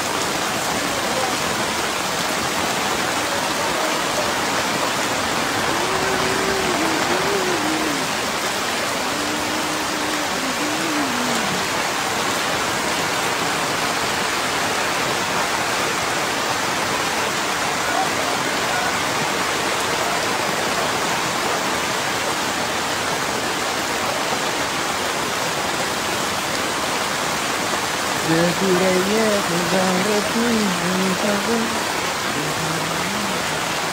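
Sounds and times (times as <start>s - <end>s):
heavy rain pouring: 0.0s - 33.9s
distant voice calling out: 3.1s - 11.8s.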